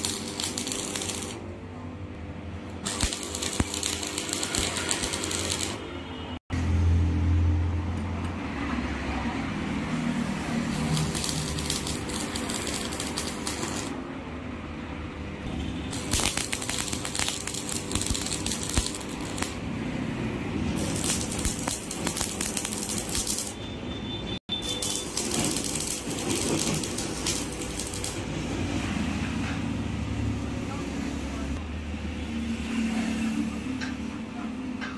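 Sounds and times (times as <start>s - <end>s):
welding arc crackling: 0.0s - 1.4s, 2.8s - 5.9s, 10.6s - 14.0s, 15.5s - 23.6s, 24.5s - 29.2s.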